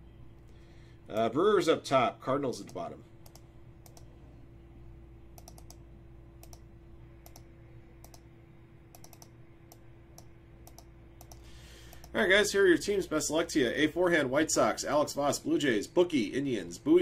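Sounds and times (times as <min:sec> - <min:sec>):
faint electrical hum: 0:00.0 - 0:17.0
mouse and keyboard clicks: 0:05.4 - 0:05.8, 0:07.2 - 0:08.2, 0:08.9 - 0:12.1.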